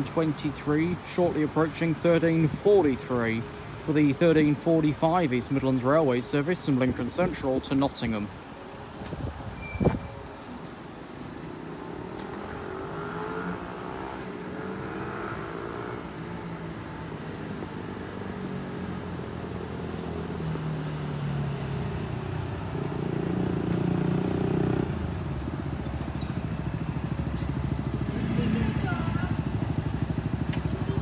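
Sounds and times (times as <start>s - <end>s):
steady engine hum: 10.2s - 31.0s
vehicle engine revving: 11.7s - 16.2s, 22.8s - 25.0s, 27.3s - 31.0s.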